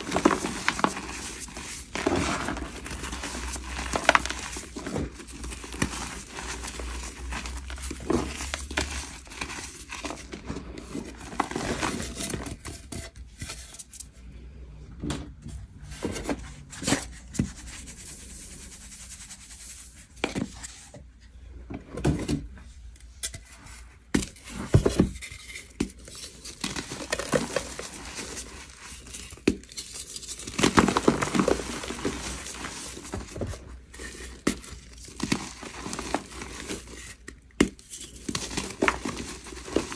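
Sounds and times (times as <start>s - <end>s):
chalk crunching and crackling: 0.0s - 12.3s, 24.3s - 39.9s.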